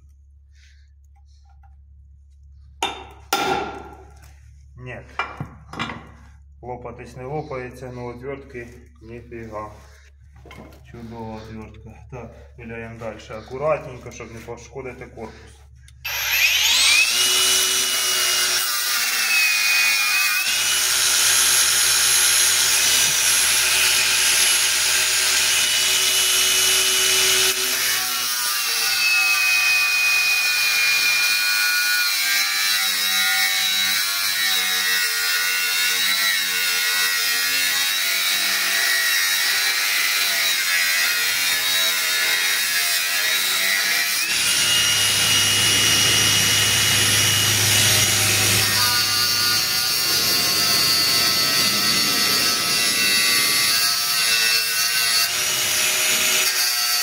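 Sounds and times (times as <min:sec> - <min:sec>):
angle grinder cutting steel: 0:15.9 - 0:57.0.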